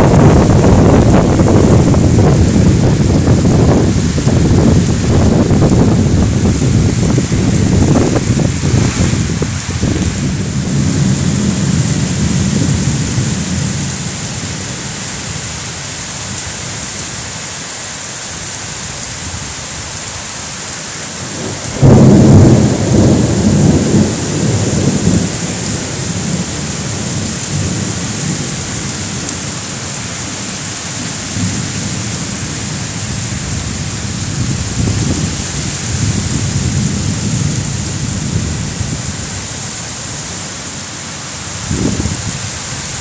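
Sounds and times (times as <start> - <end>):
thunder clap rumbling: 0.0 - 14.7, 21.2 - 29.5, 31.3 - 39.4, 41.6 - 43.0
heavy rain pouring: 0.0 - 43.0.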